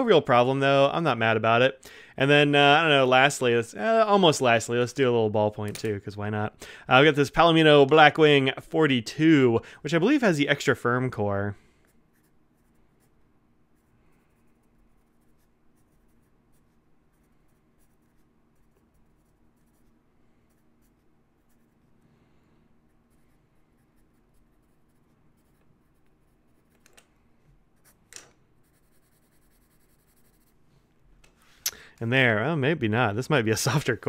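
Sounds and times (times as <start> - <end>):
pencil scratching on paper: 11.9 - 22.0, 22.8 - 26.8, 28.6 - 30.6.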